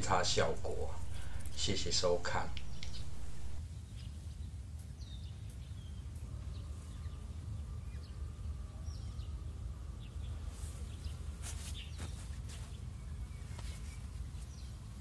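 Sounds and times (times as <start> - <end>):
low rumble: 0.0 - 3.6
faint bird chirps: 0.5 - 4.1.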